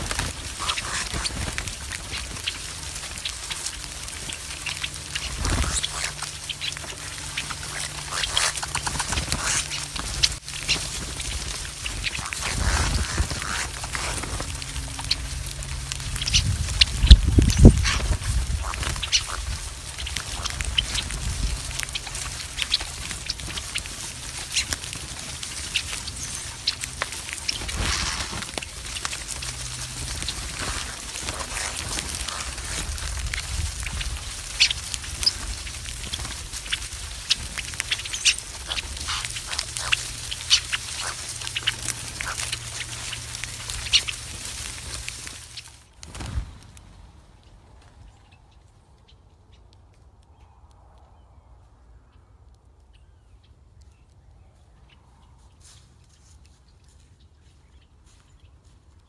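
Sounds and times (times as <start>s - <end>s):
birds pecking seed in stone bowl: 0.0s - 47.1s
low steady rumble: 0.0s - 48.5s.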